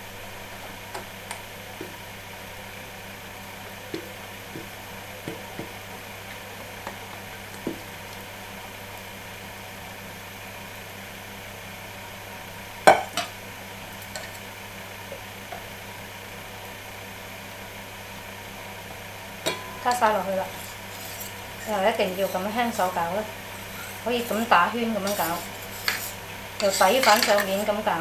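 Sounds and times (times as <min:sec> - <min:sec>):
steel bowls clanking: 0:19.4 - 0:27.7
spatula scraping bowl: 0:19.6 - 0:27.9.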